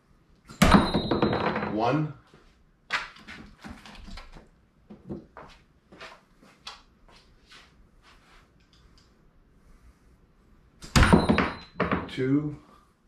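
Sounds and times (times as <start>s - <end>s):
footsteps on concrete floor: 4.9s - 8.5s.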